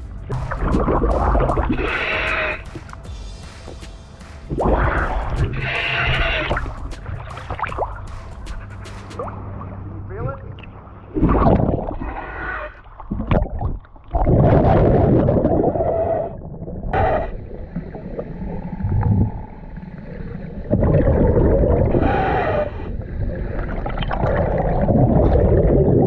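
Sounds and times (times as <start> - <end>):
diver exhaling bubbles underwater: 11.2 - 19.5, 20.1 - 26.0.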